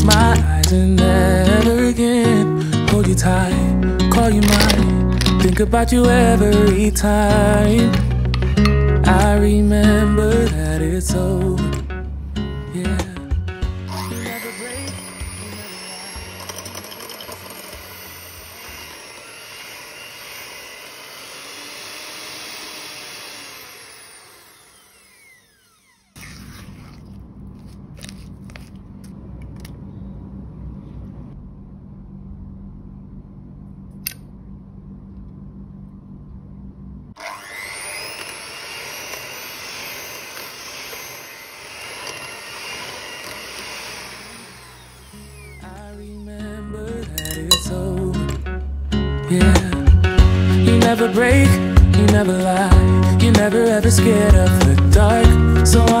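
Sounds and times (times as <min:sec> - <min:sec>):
electric hand mixer beating: 0:13.6 - 0:26.5, 0:37.2 - 0:46.2, 0:50.2 - 0:56.0
low hum: 0:25.6 - 0:37.2.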